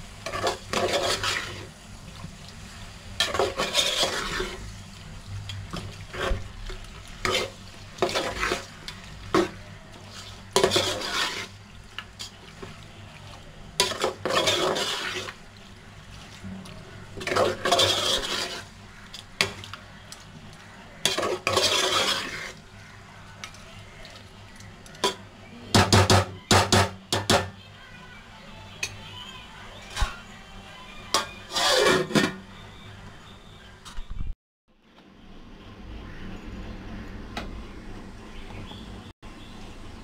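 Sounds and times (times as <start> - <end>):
spoon scraping a pot: 0.2 - 1.7, 3.2 - 4.7, 5.7 - 12.7, 13.8 - 15.4, 17.2 - 19.7, 21.0 - 22.6, 31.1 - 32.4.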